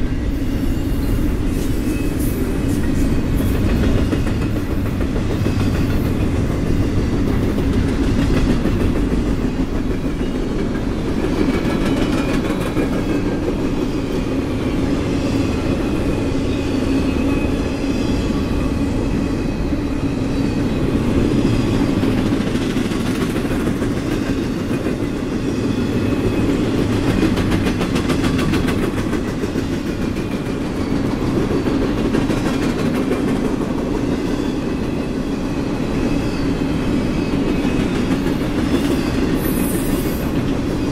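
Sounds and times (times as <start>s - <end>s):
freight train wheels rumbling: 0.0s - 40.9s
clickety-clack over rail joints: 2.6s - 14.7s, 21.0s - 35.1s, 37.2s - 40.9s
faint high wheel squeal: 13.9s - 22.0s, 34.3s - 40.9s.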